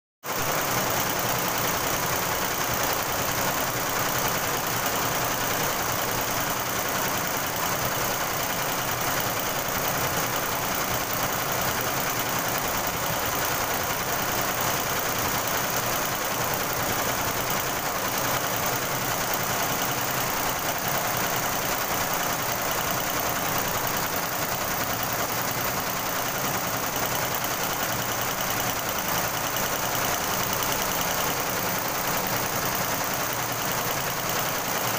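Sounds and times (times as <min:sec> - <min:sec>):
embroidery machine clatter: 0:00.3 - 0:34.9.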